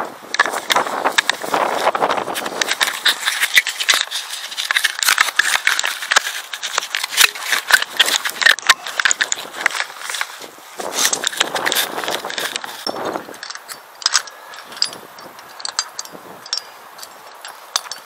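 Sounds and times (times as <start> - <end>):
clicks and rattles: 0.3 - 18.0
fabric rubbing on camera housing: 0.4 - 13.3.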